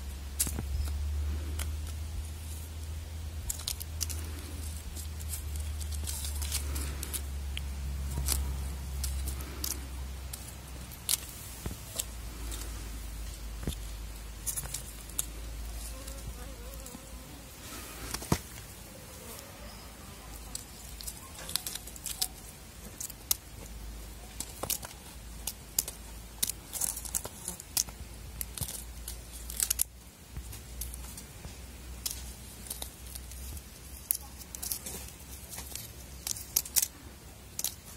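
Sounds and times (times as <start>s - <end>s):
low steady rumble: 0.0s - 19.1s
candy wrapper toy crinkling: 0.2s - 16.2s, 19.7s - 31.2s, 31.8s - 37.9s.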